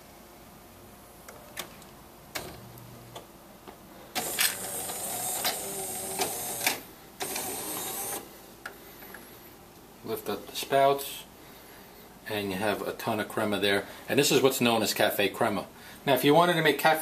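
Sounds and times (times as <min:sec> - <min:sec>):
espresso machine whirring and hissing: 0:04.1 - 0:08.3.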